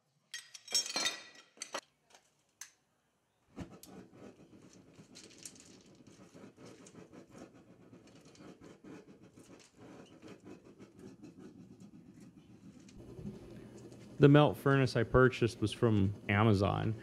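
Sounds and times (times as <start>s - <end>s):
gas furnace puffing flutter: 3.5s - 17.0s.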